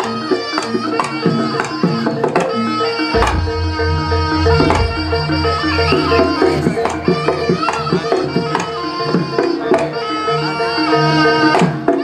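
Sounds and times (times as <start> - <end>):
hand drum strokes: 3.2 - 7.2
ringing metal percussion: 3.2 - 7.6.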